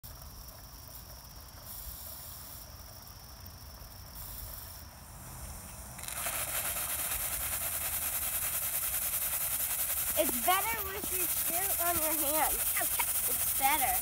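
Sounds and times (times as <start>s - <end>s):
steam hissing: 1.6s - 2.7s, 4.2s - 14.0s.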